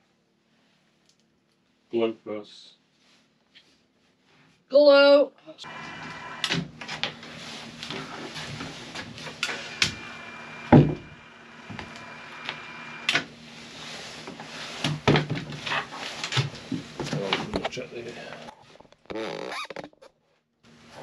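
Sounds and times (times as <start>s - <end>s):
caulking gun motor whine: 5.6s - 17.7s.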